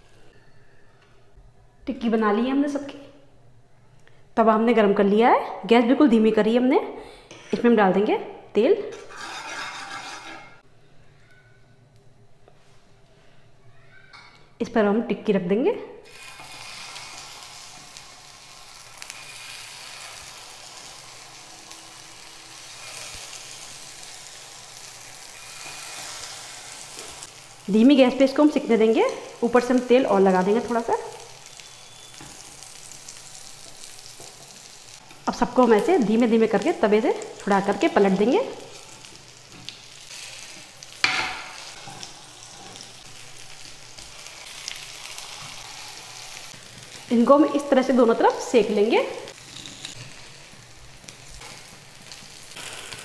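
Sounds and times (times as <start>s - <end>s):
spatula scraping pan: 8.9s - 10.6s
patties sizzling in oil: 16.0s - 53.0s.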